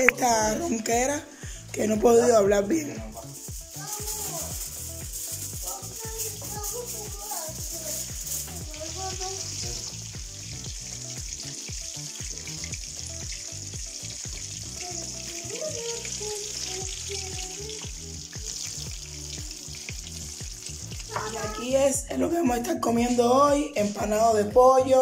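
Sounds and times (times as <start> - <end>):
music with steady beat: 0.0 - 25.0
chicken frying in oil: 3.2 - 21.7.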